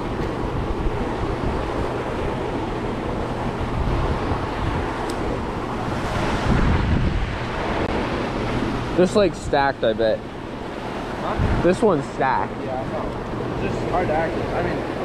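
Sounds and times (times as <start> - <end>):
wind on microphone: 0.0 - 9.7, 10.3 - 12.0.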